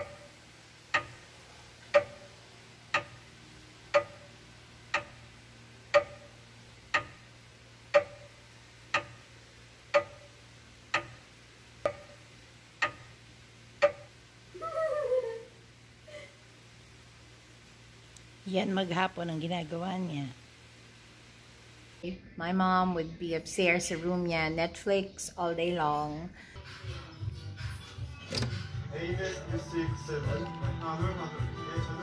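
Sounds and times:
clock ticking: 0:00.0 - 0:01.3, 0:01.9 - 0:03.3, 0:03.9 - 0:13.2, 0:13.8 - 0:14.2
faint steady hum: 0:00.0 - 0:32.0.

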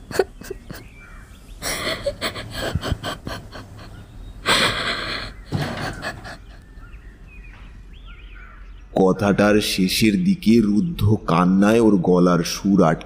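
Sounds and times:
woman sobbing: 0:00.0 - 0:01.0, 0:01.6 - 0:06.8
ragged gasping breaths: 0:01.6 - 0:06.7.

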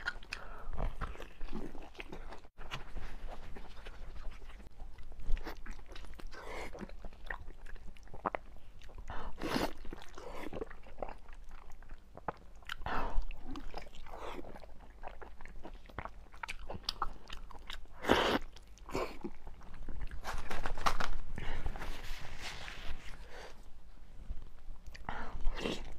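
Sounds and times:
biting and chewing: 0:00.0 - 0:09.0.

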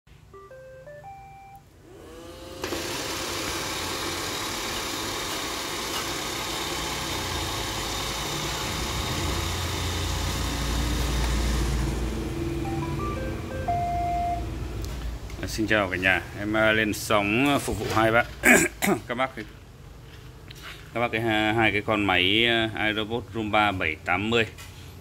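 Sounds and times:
rising tune of beeps: 0:00.3 - 0:01.6, 0:12.4 - 0:14.7
robot vacuum whirring: 0:01.8 - 0:12.1.

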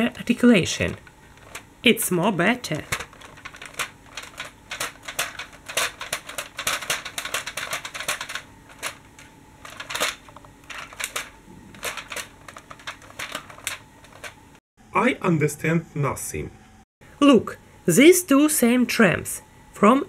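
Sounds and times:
plastic toy clicking and rattling: 0:00.8 - 0:01.6, 0:02.6 - 0:14.4.

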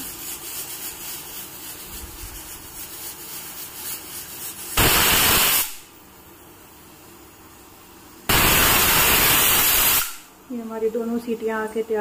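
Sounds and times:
pressure cooker whistle hissing: 0:04.8 - 0:05.8, 0:08.3 - 0:10.3.

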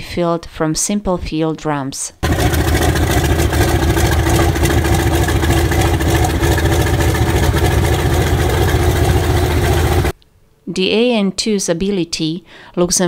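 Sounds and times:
radial aircraft engine running: 0:02.2 - 0:10.1.

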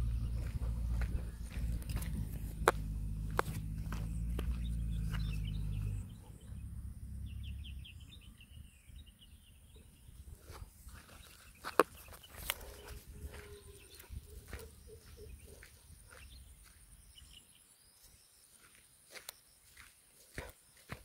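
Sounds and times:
bird chirps: 0:00.0 - 0:19.9.

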